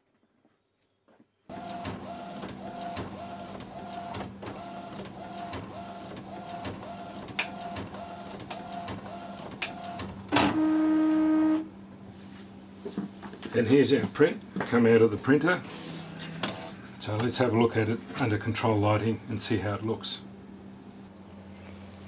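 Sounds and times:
printer whirring tone: 1.5 - 11.7.

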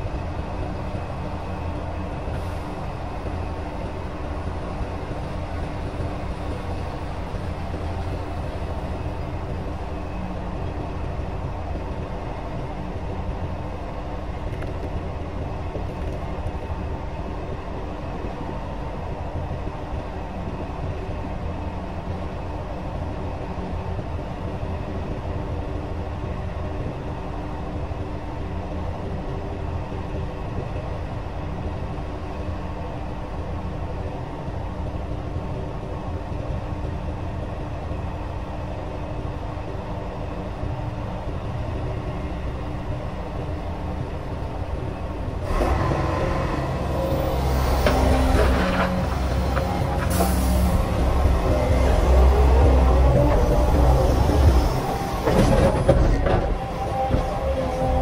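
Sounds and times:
excavator diesel engine humming: 39.4 - 58.0.

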